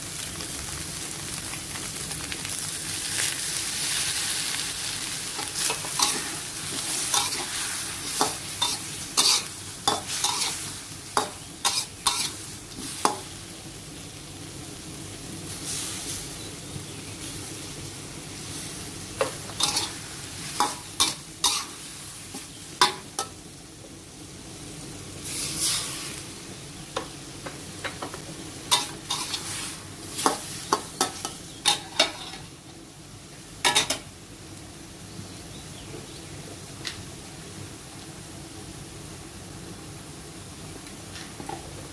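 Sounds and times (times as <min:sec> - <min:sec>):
food sizzling in a wok: 0:00.0 - 0:41.9
metal spatula scraping a wok: 0:05.4 - 0:13.2, 0:19.2 - 0:23.0, 0:28.7 - 0:32.5.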